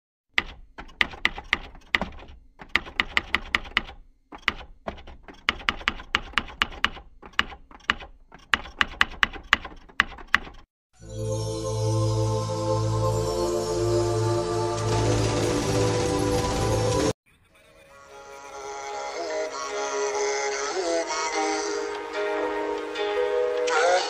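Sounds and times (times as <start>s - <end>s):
keyboard typing clicks: 0.4s - 10.7s.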